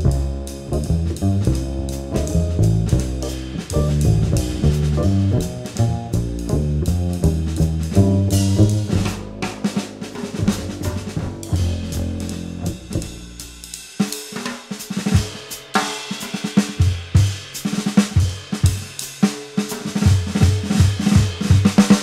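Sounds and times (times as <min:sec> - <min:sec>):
double bass low notes: 0:00.0 - 0:13.8
jazz trio playing: 0:00.0 - 0:16.0, 0:19.7 - 0:22.0
drum kit solo: 0:00.0 - 0:22.0.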